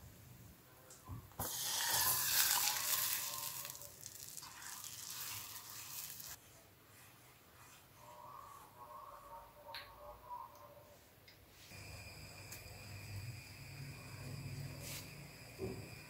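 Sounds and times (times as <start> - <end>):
milk hissing in hot butter: 1.4 - 6.4
sauce sizzling: 1.4 - 6.4.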